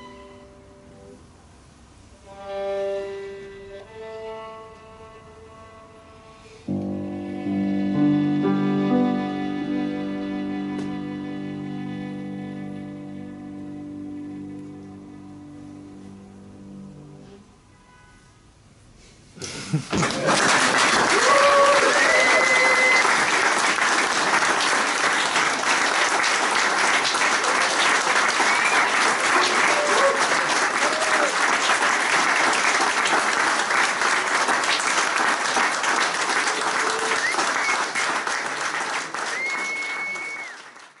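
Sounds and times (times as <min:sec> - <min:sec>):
audience applauding: 0:19.8 - 0:41.0.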